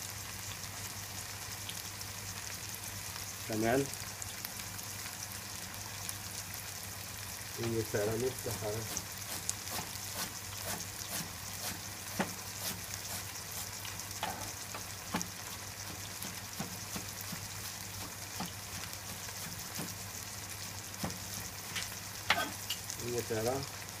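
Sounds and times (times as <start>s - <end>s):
food sizzling in a frying pan: 0.0s - 24.0s
knife strokes on cutting board: 8.8s - 14.5s.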